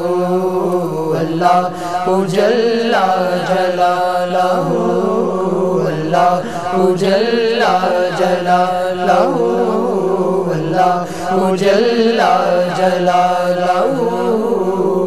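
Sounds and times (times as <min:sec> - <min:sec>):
low vocal drone: 0:00.0 - 0:15.0
men singing a devotional hymn: 0:00.0 - 0:15.0.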